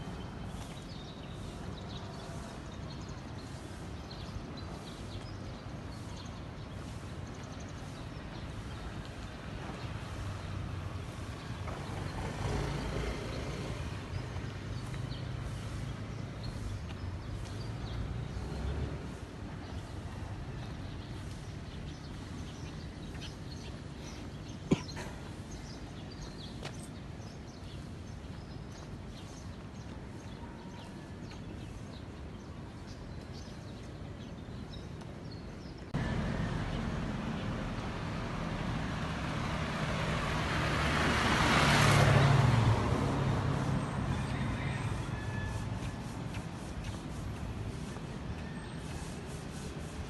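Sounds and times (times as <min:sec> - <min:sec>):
city street noise: 0:00.0 - 0:50.0
car driving past: 0:36.0 - 0:45.8.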